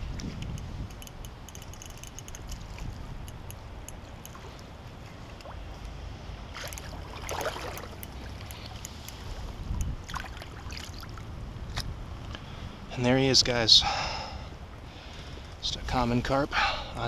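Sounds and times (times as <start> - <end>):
wind rumble on microphone: 0.0 - 13.7
water splashing: 6.5 - 8.5, 10.0 - 11.2.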